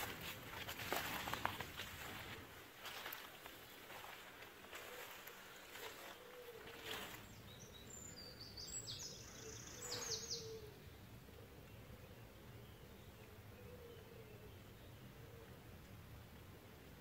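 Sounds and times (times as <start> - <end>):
bird chirping: 4.8 - 15.5.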